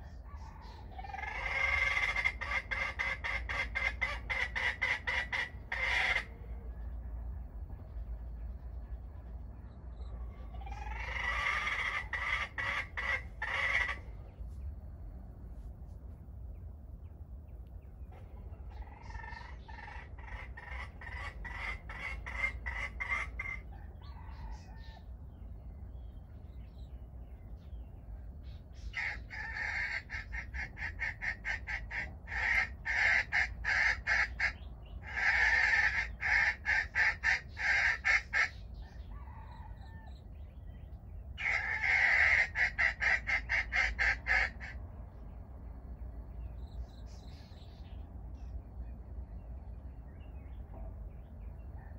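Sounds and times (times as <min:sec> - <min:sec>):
fowl clucking: 0:00.0 - 0:06.6, 0:10.2 - 0:14.4, 0:18.1 - 0:25.0, 0:28.7 - 0:40.1, 0:41.4 - 0:44.8.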